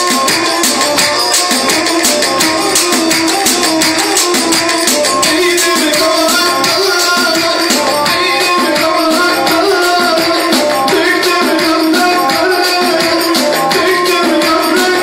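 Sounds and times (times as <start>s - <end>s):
live folk dance music: 0.0s - 15.0s
man singing into a microphone: 4.2s - 15.0s.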